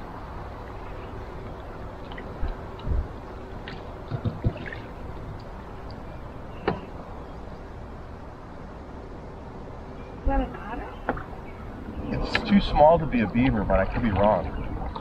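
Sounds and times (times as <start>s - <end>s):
paddle strokes dripping water: 0.2s - 7.1s, 12.3s - 15.0s
steady wash of noise: 4.6s - 14.9s.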